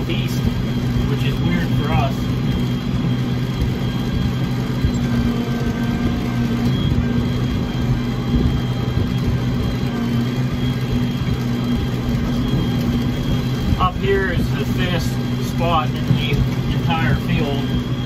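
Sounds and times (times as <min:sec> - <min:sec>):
tractor engine humming: 0:00.0 - 0:18.0.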